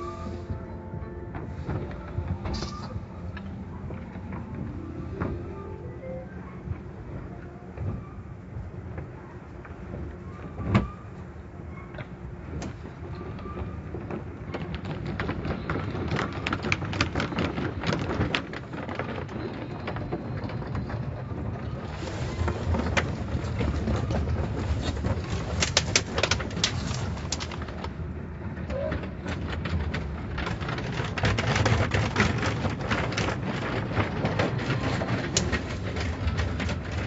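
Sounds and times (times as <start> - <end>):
steady low rumble: 0.0 - 28.6
rapid taps and splatters: 29.6 - 37.0
car wash water beating on car: 29.7 - 37.0.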